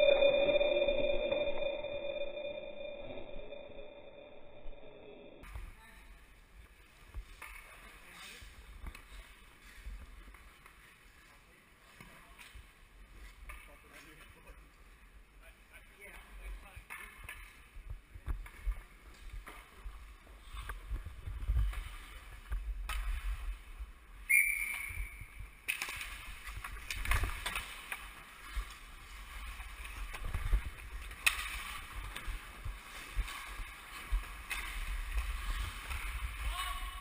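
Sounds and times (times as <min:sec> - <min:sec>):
short high tone: 0:00.0 - 0:05.4
skate blades scraping ice: 0:25.7 - 0:36.5
hockey sticks clacking: 0:29.4 - 0:36.2.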